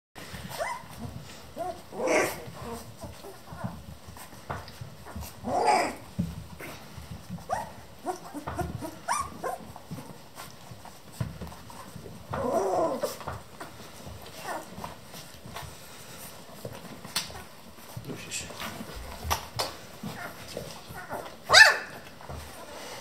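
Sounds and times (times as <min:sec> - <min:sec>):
rustling: 0:00.2 - 0:23.0
puppies squeaking and whining: 0:00.3 - 0:18.0, 0:18.8 - 0:23.0
puppy loud cries: 0:01.6 - 0:03.7, 0:05.2 - 0:06.1, 0:07.5 - 0:09.7, 0:20.2 - 0:22.0.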